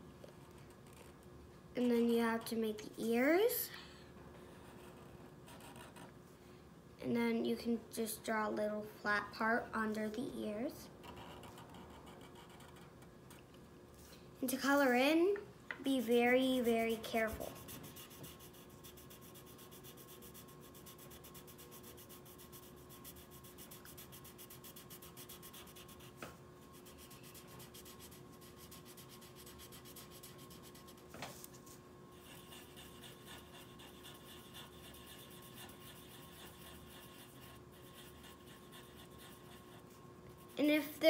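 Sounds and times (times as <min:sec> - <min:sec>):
marker rubbing on paper: 0:16.0 - 0:31.1, 0:32.2 - 0:39.8.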